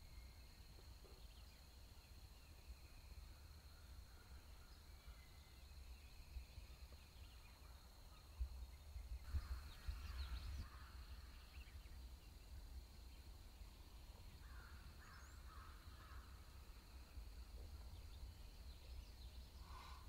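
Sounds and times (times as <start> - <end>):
bird calls: 4.2 - 20.0
wind rumble on microphone: 6.3 - 15.4.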